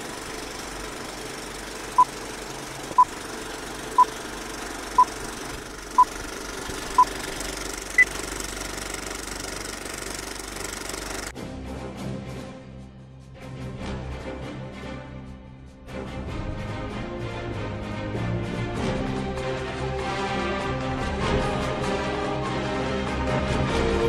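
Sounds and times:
film projector clatter: 0:00.0 - 0:11.3.

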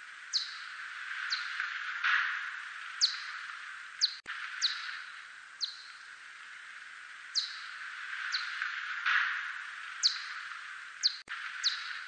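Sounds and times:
steady hiss: 0:00.0 - 0:12.0
bat echolocation chirps: 0:00.3 - 0:01.6, 0:02.3 - 0:06.1, 0:07.3 - 0:08.7, 0:09.3 - 0:12.0.

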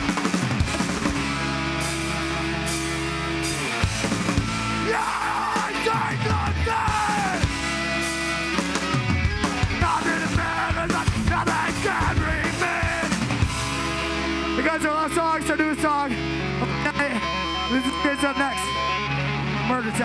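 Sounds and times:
distorted electric guitars and bass: 0:00.0 - 0:20.0
drums: 0:00.0 - 0:20.0
singer yelling: 0:04.6 - 0:07.7, 0:09.6 - 0:16.0.

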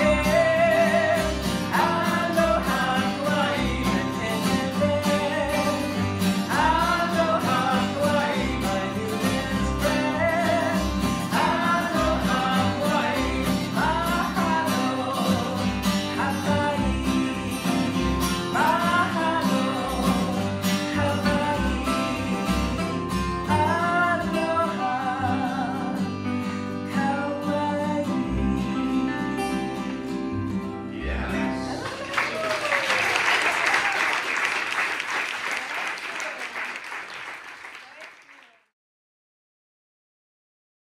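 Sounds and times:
acoustic guitar strumming: 0:00.0 - 0:31.8.

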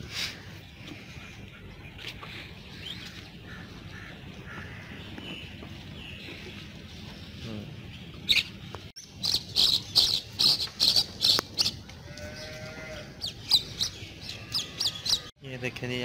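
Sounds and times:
sharp high chirping calls: 0:08.3 - 0:11.8.

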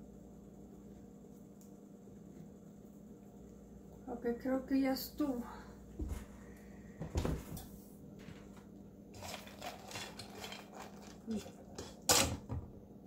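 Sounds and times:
seeds scraping and rustling: 0:09.1 - 0:11.9.

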